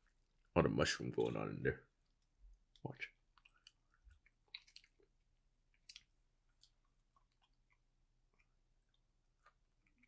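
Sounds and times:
mouth chewing soft clicks: 2.1s - 10.0s.

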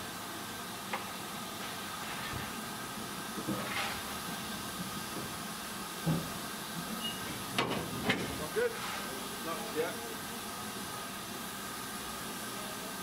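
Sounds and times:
steam locomotive hissing: 0.0s - 13.0s.

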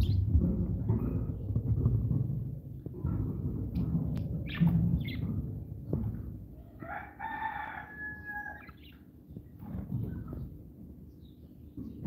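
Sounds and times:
low rumbling noise: 0.0s - 6.8s
rooster crowing: 6.8s - 8.7s.

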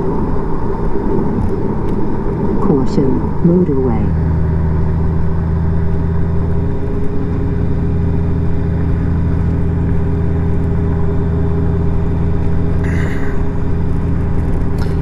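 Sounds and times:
road and wind noise: 0.0s - 15.0s
motorcycle engine cruising: 3.2s - 15.0s.

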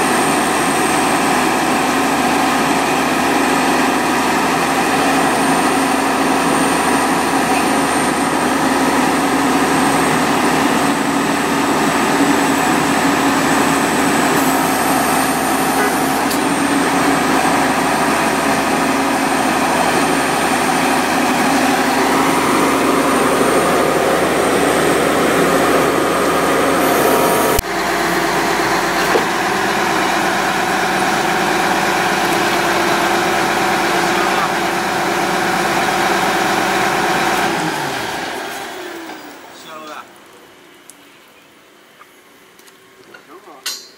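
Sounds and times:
drilling rig engine and hydraulics: 0.0s - 40.0s
thin high whine: 12.3s - 16.6s.

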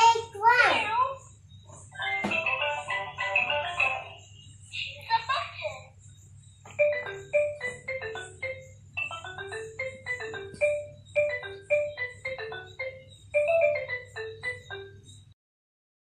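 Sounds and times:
xylophone-like electronic tune: 6.6s - 15.3s.

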